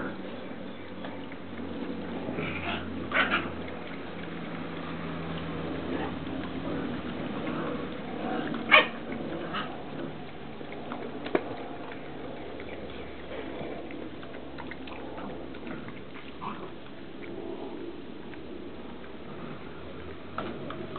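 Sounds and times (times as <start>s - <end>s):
puppy yelping: 8.7s - 9.7s.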